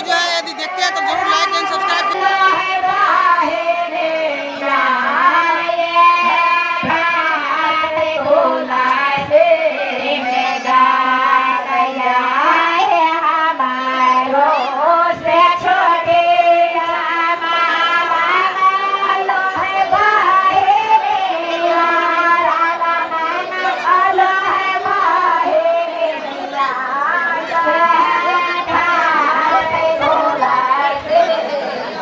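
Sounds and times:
high-pitched voice singing: 0.0s - 2.6s.

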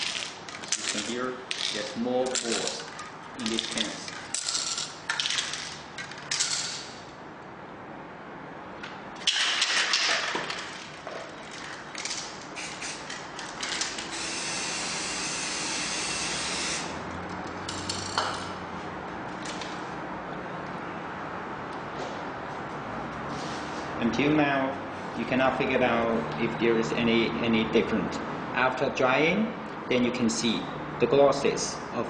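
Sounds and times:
paint scraping and hissing: 23.3s - 24.0s.

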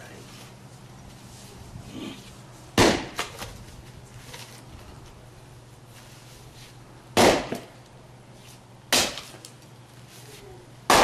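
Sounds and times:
splitting maul striking a log: 2.8s - 3.3s, 7.2s - 7.7s, 8.9s - 9.3s.

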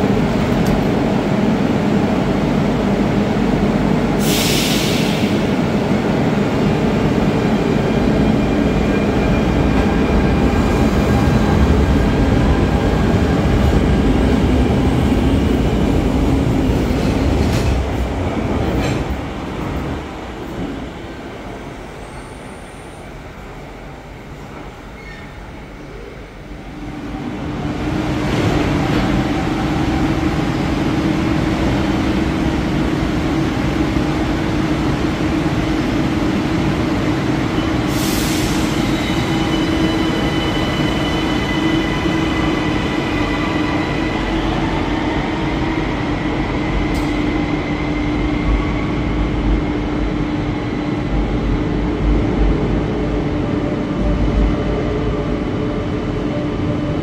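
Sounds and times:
train hum: 0.0s - 57.0s
air hiss: 4.2s - 5.5s.

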